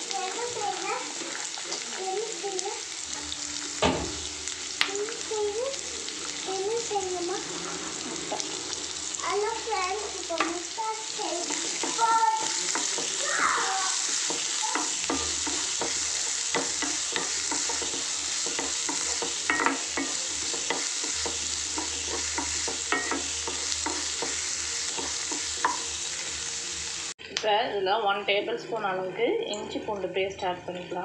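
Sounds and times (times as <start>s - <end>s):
onions sizzling in hot oil: 0.0s - 31.0s
spatula scraping and knocking pan: 6.8s - 26.3s.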